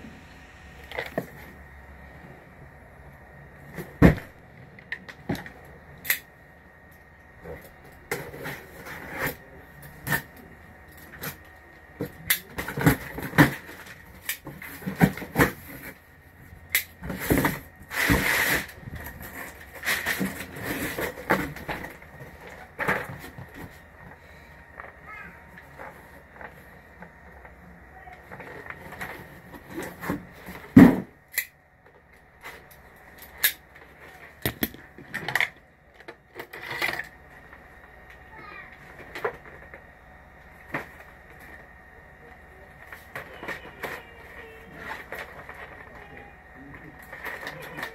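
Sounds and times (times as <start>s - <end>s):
cardboard scraping rustle: 17.0s - 23.9s.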